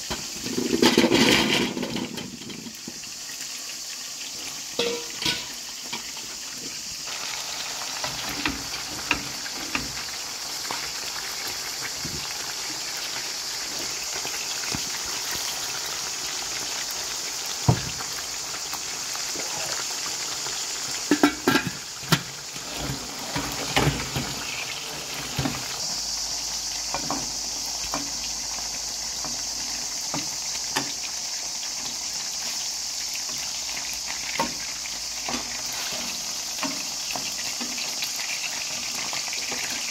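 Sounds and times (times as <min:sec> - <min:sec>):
chicken sizzling in oil: 0:00.0 - 0:39.9
cookware knocks and clinks: 0:04.8 - 0:05.5, 0:21.1 - 0:22.2.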